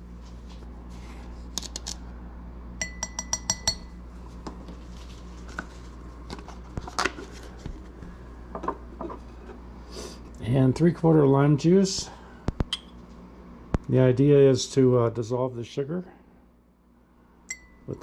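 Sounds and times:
spoon clinking on glass: 0:02.8 - 0:03.9, 0:17.5 - 0:17.9.

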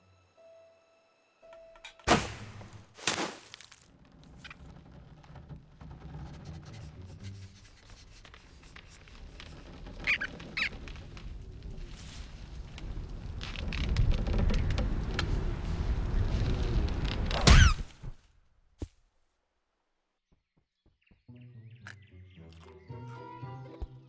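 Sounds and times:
cartoon rodent squeaks: 0:10.0 - 0:10.8.

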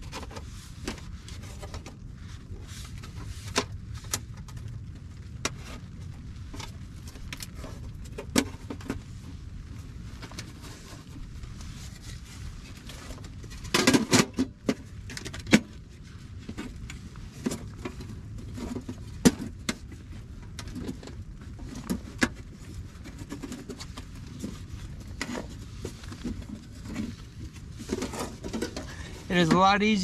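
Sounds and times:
camping gear clinking and rustling: 0:00.0 - 0:30.0.

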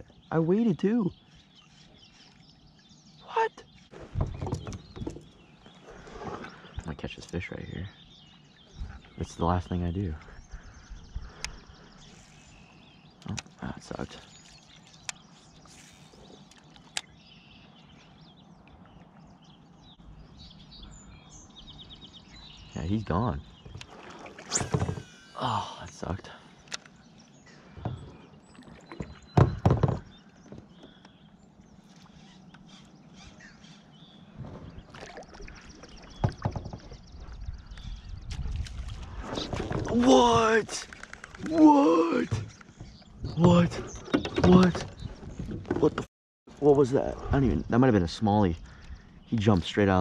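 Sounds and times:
birds chirping faintly: 0:00.0 - 0:50.0
water and handling noises: 0:13.2 - 0:17.2, 0:23.6 - 0:32.7, 0:34.4 - 0:46.9.

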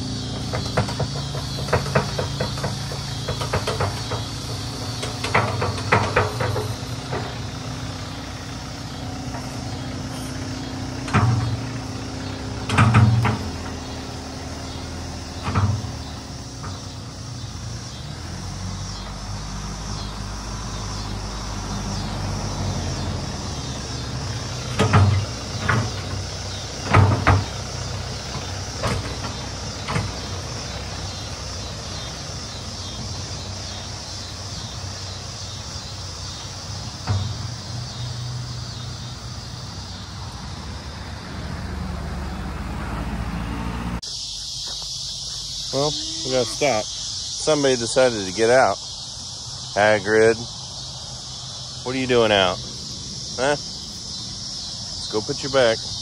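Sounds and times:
loud clunks and knocks: 0:00.0 - 0:08.5, 0:09.3 - 0:17.2, 0:24.0 - 0:31.2, 0:36.8 - 0:38.4
tractor diesel engine running: 0:00.0 - 0:56.0.

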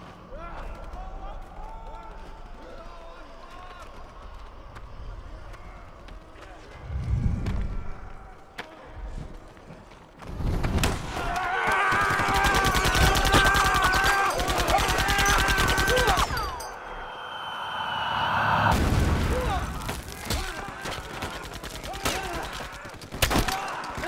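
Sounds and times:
gunshots: 0:10.7 - 0:16.4, 0:18.7 - 0:24.0
rapid automatic gunfire: 0:11.8 - 0:16.2, 0:20.2 - 0:24.0.

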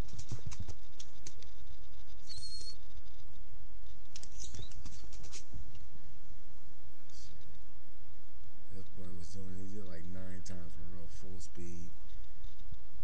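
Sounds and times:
quick light clicks and patters: 0:00.0 - 0:05.9.

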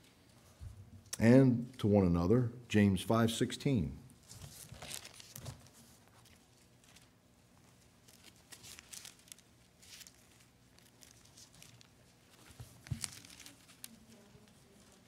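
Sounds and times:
book pages turning: 0:04.2 - 0:07.1, 0:08.0 - 0:15.0.

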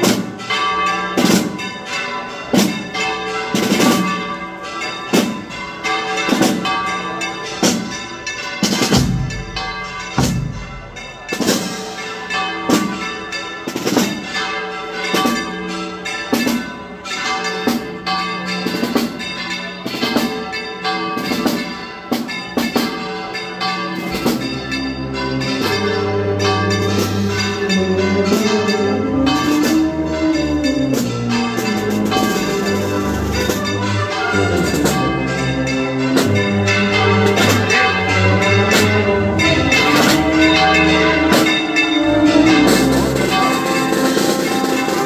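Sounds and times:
church bells clanging: 0:00.0 - 0:45.0
sustained musical notes: 0:24.2 - 0:45.0.

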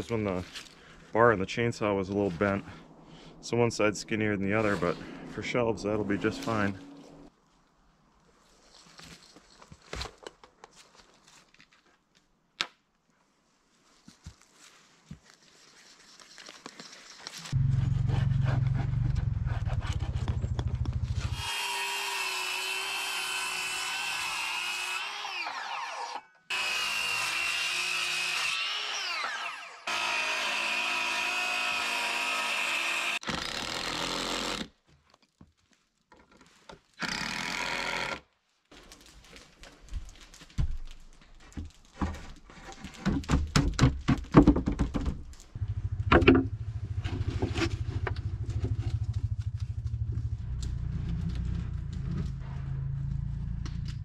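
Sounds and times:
knocks and scrapes on wood: 0:40.6 - 0:45.2, 0:46.1 - 0:49.0.

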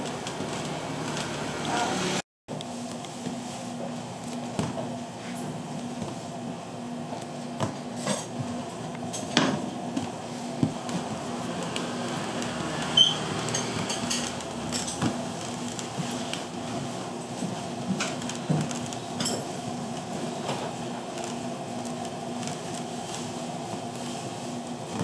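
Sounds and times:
dishes and utensils clinking: 0:13.0 - 0:15.1.

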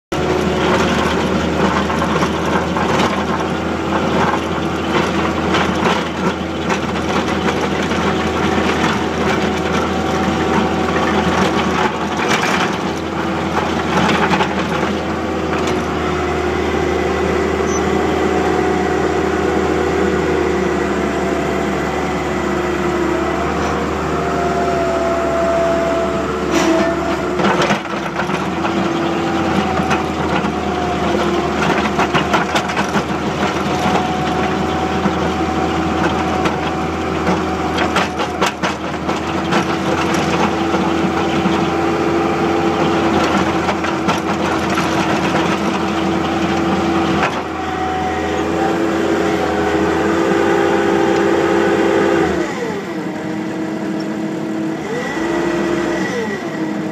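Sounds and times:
skid-steer engine running: 0:00.1 - 0:56.9
sharp knocks and rattles: 0:00.2 - 0:15.9, 0:27.4 - 0:35.4, 0:36.0 - 0:41.8.

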